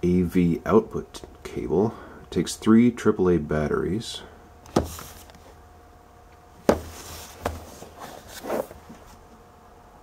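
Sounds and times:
knocks and taps on cardboard box: 0:06.6 - 0:07.7
cardboard scraping: 0:06.7 - 0:09.2.

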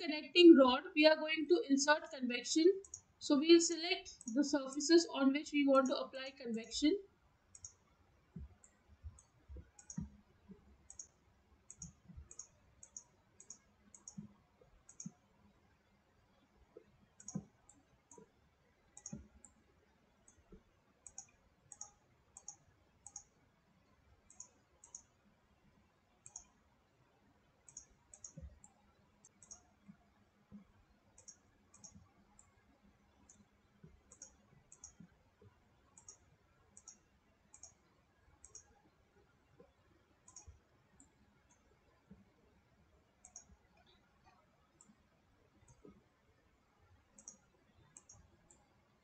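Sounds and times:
faint computer mouse clicks: 0:02.8 - 0:03.1, 0:07.5 - 0:15.3, 0:16.8 - 0:18.3, 0:19.0 - 0:19.6, 0:20.2 - 0:23.4, 0:24.3 - 0:25.2, 0:26.2 - 0:26.6, 0:27.6 - 0:32.6, 0:33.2 - 0:35.2, 0:35.9 - 0:38.8, 0:39.6 - 0:42.3, 0:43.2 - 0:45.0, 0:45.6 - 0:46.0, 0:47.1 - 0:48.7.

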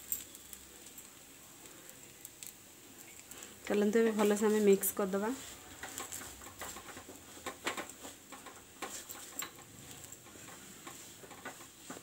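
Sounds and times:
wooden spatula scraping pan: 0:04.1 - 0:12.0.

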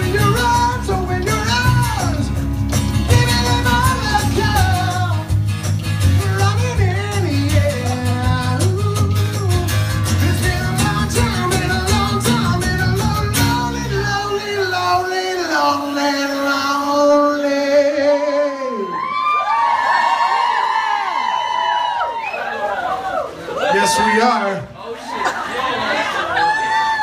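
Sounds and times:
bass guitar: 0:00.0 - 0:18.0
electric guitar: 0:00.0 - 0:18.0
strummed acoustic guitars: 0:00.0 - 0:18.0
man singing lead: 0:00.0 - 0:19.2.

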